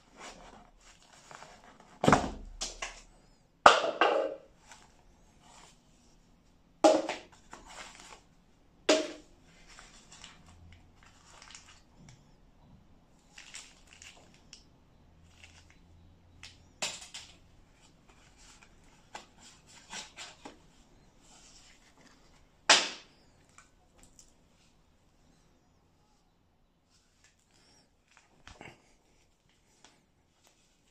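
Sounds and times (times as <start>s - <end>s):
paper and plastic rustling: 9.5s - 12.2s, 13.2s - 14.6s, 15.2s - 22.5s.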